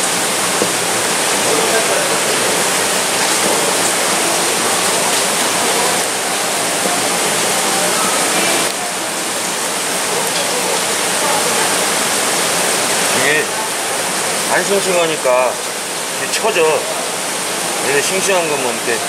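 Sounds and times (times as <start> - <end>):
running water rushing: 0.0 - 19.0.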